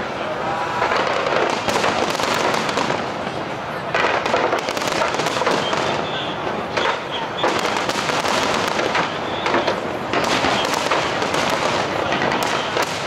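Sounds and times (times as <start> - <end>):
crackling of firework stars: 0.0 - 13.0
fireworks shells bursting: 4.0 - 13.0.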